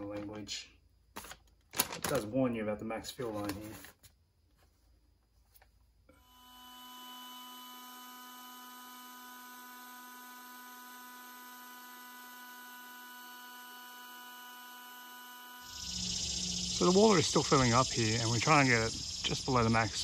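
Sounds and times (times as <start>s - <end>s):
electric air pump motor whine: 6.1s - 20.0s.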